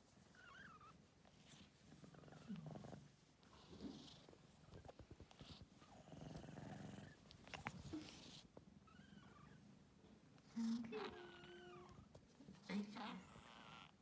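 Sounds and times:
kitten purring: 0.3 - 9.6.

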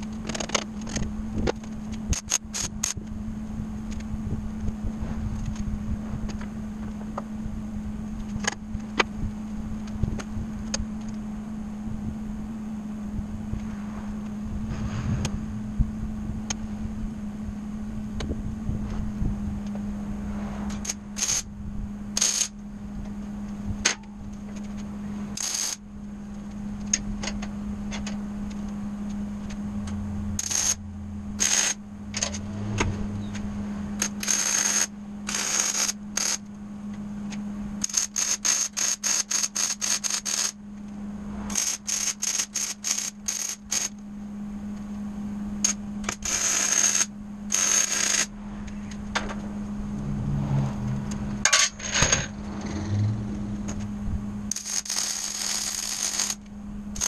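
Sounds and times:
arc welding crackle: 0.0 - 3.1, 20.7 - 21.5, 22.2 - 22.6, 24.3 - 25.8, 30.3 - 30.8, 31.4 - 32.4, 34.0 - 36.6, 37.8 - 40.9, 41.5 - 44.0, 45.6 - 48.3, 54.5 - 57.0
steady low hum: 0.0 - 57.0.

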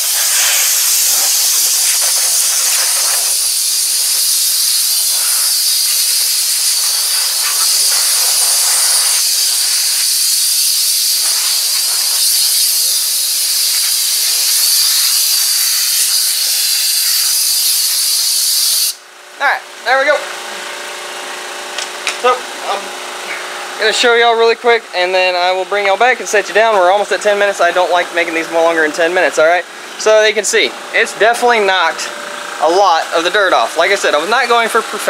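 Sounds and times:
compressed air hissing: 0.0 - 19.0.

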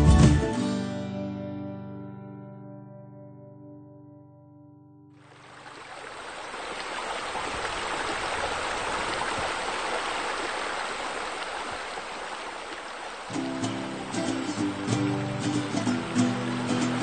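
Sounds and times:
music: 0.0 - 5.1, 13.3 - 17.0
running water rushing: 5.2 - 17.0.

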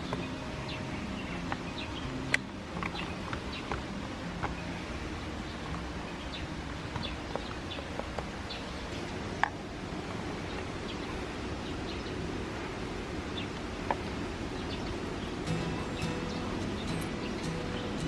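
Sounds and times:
outdoor background hiss: 0.0 - 18.0
bird chirps: 14.6 - 18.0.

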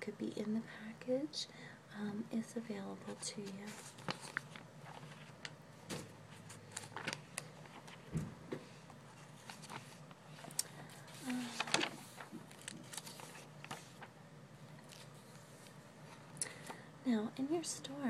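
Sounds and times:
catalog pages turning: 3.3 - 8.1, 8.8 - 16.2.

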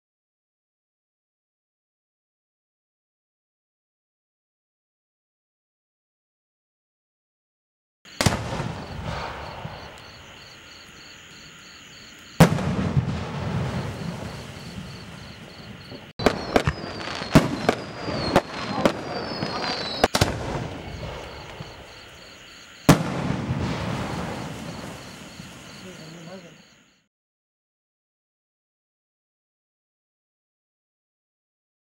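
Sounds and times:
firework shells banging: 12.4 - 22.1
rumbling echo: 16.2 - 22.0.

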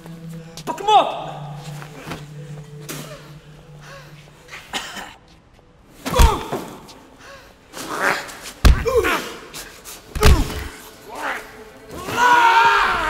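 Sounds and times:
man groaning in pain: 8.8 - 9.5.

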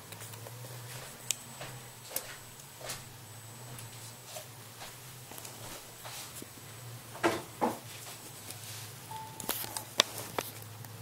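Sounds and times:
low steady hum: 0.0 - 11.0
cat rustling on a bed: 4.0 - 6.6.

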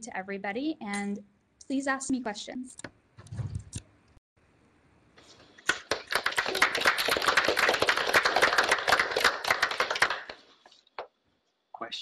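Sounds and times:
audience applause: 5.6 - 10.5.

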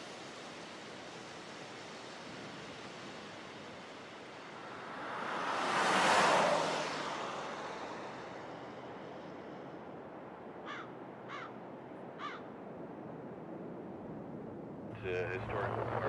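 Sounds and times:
rushing noise: 0.0 - 9.8
wind-like background: 0.0 - 16.0
crow cawing: 10.6 - 11.6, 12.2 - 12.5.

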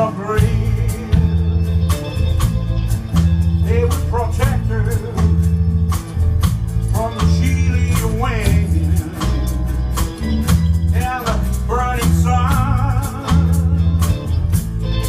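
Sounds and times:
band playing live: 0.0 - 15.0
bending melodic phrases: 0.0 - 15.0.

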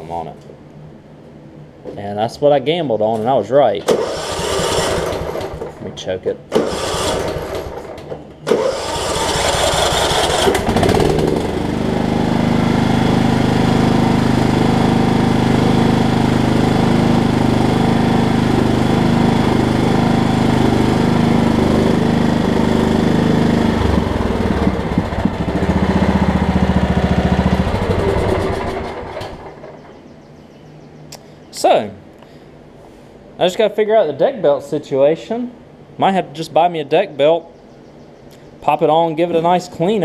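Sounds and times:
riding mower engine cranking and running: 3.8 - 30.0.

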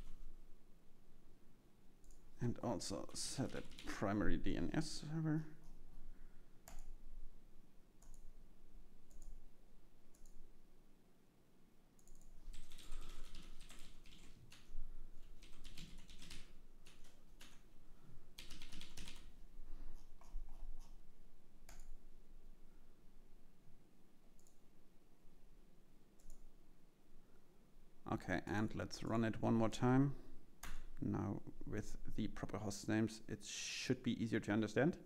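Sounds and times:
typing on computer keyboard: 3.4 - 4.0, 12.0 - 17.6, 18.4 - 19.3.

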